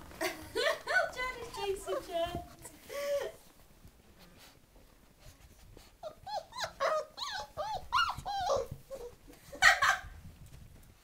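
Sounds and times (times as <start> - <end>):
puppies whining and yipping: 6.0 - 10.0.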